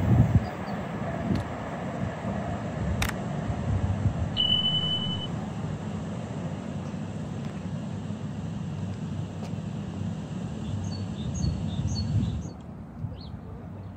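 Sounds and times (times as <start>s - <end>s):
short high beep: 4.4s - 5.3s.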